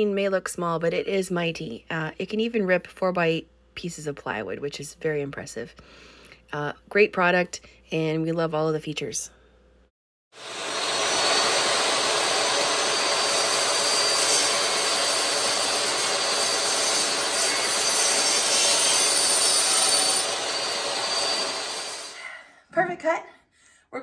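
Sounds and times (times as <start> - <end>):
table saw cutting a board: 10.4 - 22.2.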